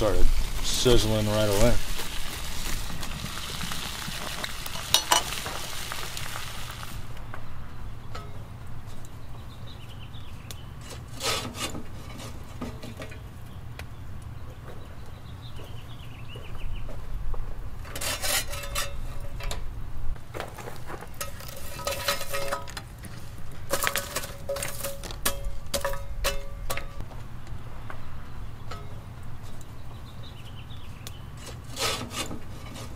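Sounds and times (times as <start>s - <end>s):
metal cookware scraping: 10.8s - 13.2s, 17.8s - 19.6s, 21.2s - 22.8s, 23.7s - 27.0s, 31.4s - 32.9s.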